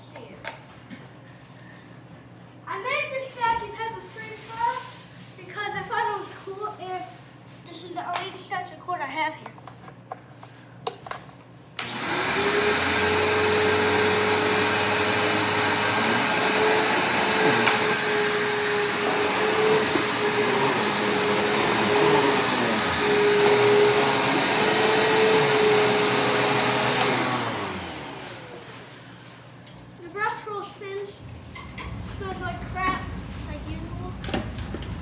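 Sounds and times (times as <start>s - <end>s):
vacuum cleaner switch click: 11.8s - 12.0s
vacuum cleaner motor whining: 11.8s - 29.1s.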